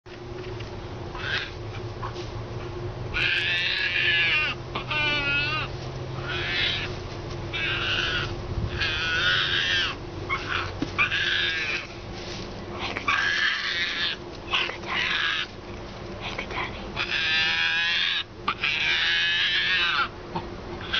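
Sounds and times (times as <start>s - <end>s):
hyena cub high-pitched calls: 1.1s - 1.6s, 3.1s - 12.0s, 17.0s - 20.1s.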